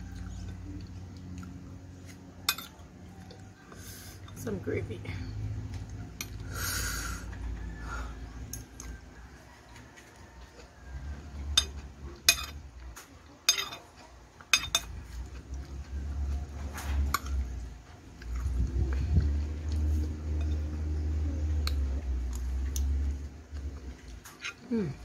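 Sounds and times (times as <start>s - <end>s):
metal spoon clinking on plate: 2.5s - 2.8s, 11.5s - 12.6s, 13.5s - 13.8s, 14.5s - 15.0s.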